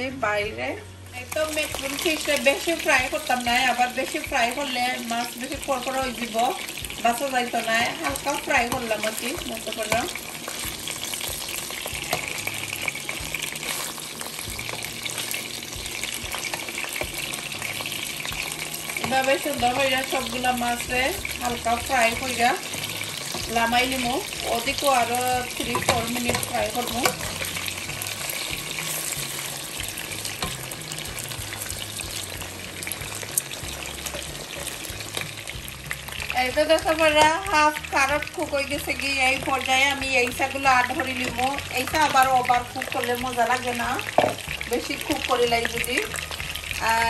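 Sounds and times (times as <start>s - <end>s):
fish sizzling in a frying pan: 0.0s - 47.0s
metal spoon scraping a pan: 7.6s - 35.4s.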